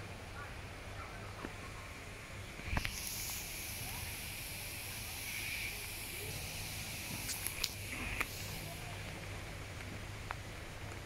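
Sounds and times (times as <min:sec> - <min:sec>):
steady hiss: 0:00.0 - 0:11.0.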